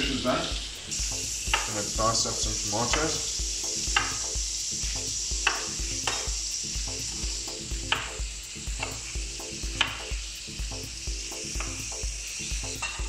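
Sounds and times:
fish sizzling in a pan: 0:00.0 - 0:13.0
knife tapping chopping board: 0:05.4 - 0:06.2.

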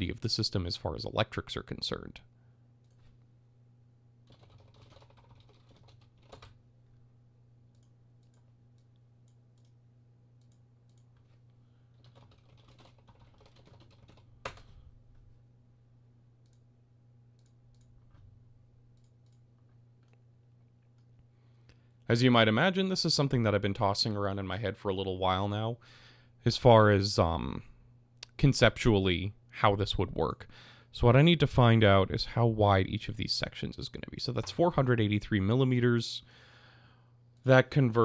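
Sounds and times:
low steady hum: 0:00.0 - 0:38.0
keyboard typing: 0:04.2 - 0:06.6, 0:12.0 - 0:14.8.

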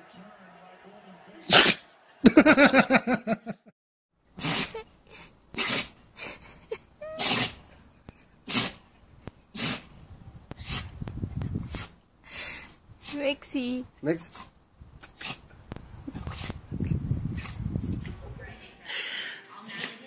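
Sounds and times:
dog sneezing: 0:01.5 - 0:01.8, 0:04.4 - 0:04.9, 0:05.5 - 0:06.0, 0:07.0 - 0:07.6, 0:08.4 - 0:08.8, 0:09.5 - 0:09.9, 0:10.6 - 0:10.9, 0:14.3 - 0:15.5.

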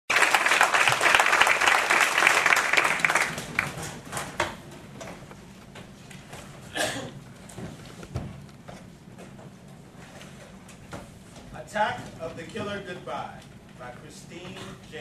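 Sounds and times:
audience applauding: 0:00.1 - 0:04.0.

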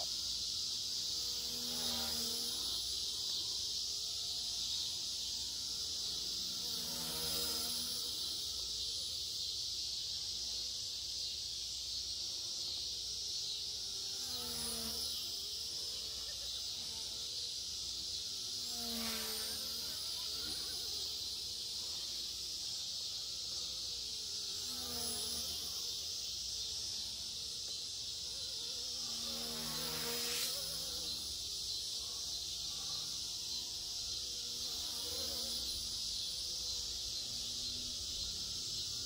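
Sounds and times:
rc helicopter buzzing: 0:00.0 - 0:09.4, 0:12.3 - 0:39.0.

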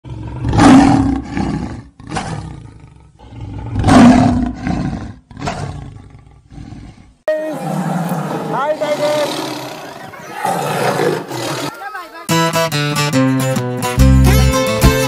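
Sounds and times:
lion grunting: 0:00.0 - 0:11.8
lion roaring: 0:00.0 - 0:11.8.

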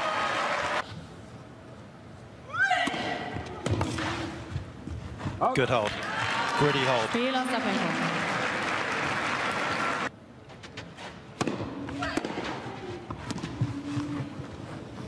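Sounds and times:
crowd applause: 0:06.0 - 0:10.1
racket hitting tennis ball: 0:11.4 - 0:13.6.

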